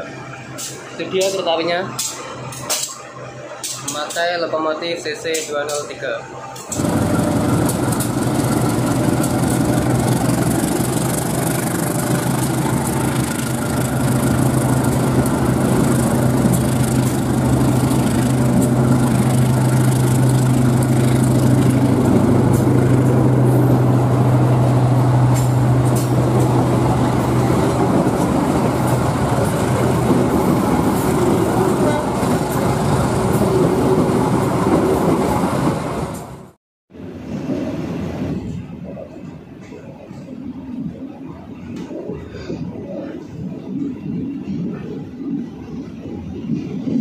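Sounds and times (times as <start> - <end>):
diesel train engine hum: 0.0 - 47.0
train rolling rumble: 0.0 - 47.0.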